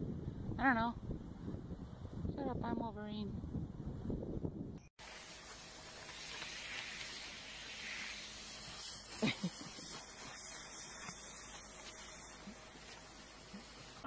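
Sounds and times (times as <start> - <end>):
hose nozzle spraying water: 5.0 - 14.0.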